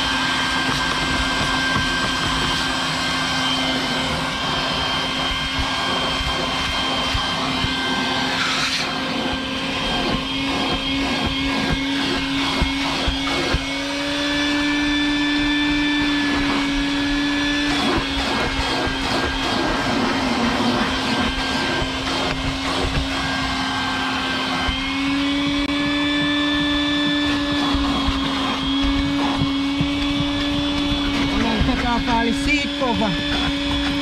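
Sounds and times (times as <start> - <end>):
vacuum cleaner running: 0.0 - 34.0.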